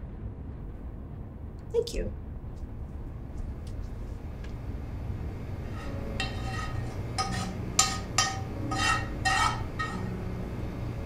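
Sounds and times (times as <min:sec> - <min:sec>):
steady low hum: 0:00.0 - 0:11.0
metal spoon scraping metal pot: 0:05.6 - 0:10.2.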